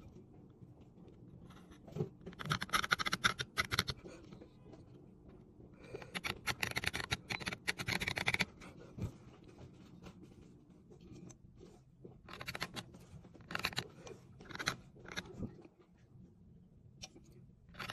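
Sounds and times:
knife scratching stone: 2.3 - 4.0, 6.0 - 8.5, 12.3 - 12.8, 13.4 - 15.3.

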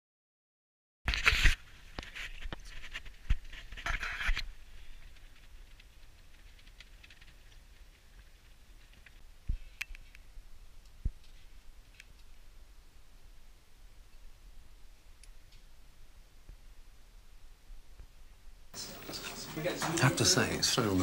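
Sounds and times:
faint scratches and ticks: 1.2 - 12.4.

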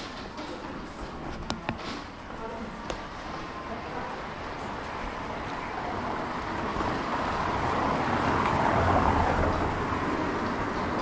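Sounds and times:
vehicle passing on wet street: 3.2 - 11.0.

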